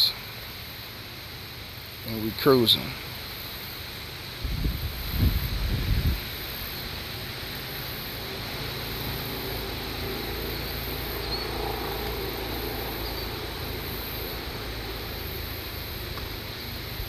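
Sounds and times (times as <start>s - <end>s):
hiss of blowing air: 0.0s - 17.0s
wind buffeting microphone: 4.4s - 6.8s.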